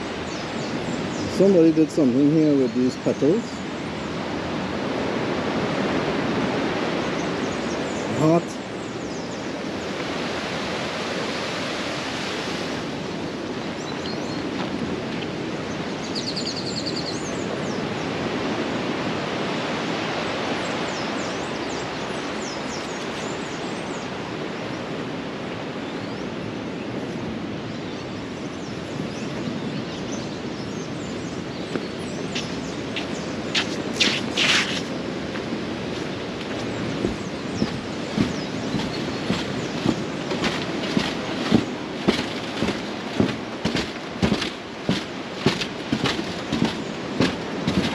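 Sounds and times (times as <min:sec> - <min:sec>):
surf breaking on beach: 0:09.5 - 0:16.2, 0:32.4 - 0:47.9.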